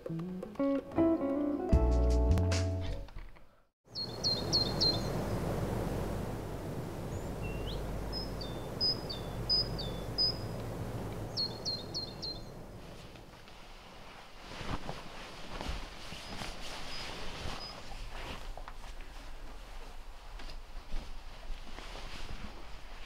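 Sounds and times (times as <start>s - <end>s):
birds chirping: 3.9s - 12.8s
outdoor background hiss: 3.9s - 23.0s
rustling on a bed: 12.6s - 23.0s.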